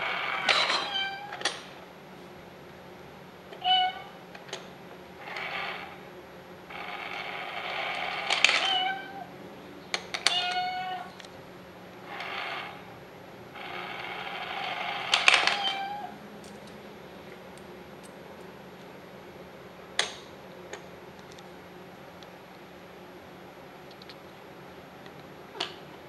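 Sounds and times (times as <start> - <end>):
mechanical meows: 0.0 - 1.5, 3.6 - 4.2, 5.2 - 6.0, 6.7 - 9.3, 10.2 - 11.2, 12.1 - 12.9, 13.6 - 16.2.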